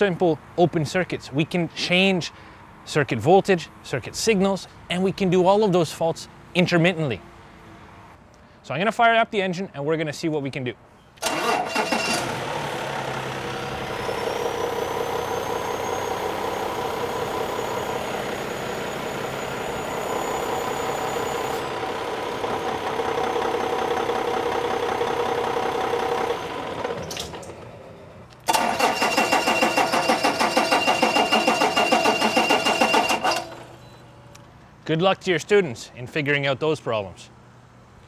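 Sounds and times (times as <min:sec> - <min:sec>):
diesel engine idling: 0:11.2 - 0:34.4.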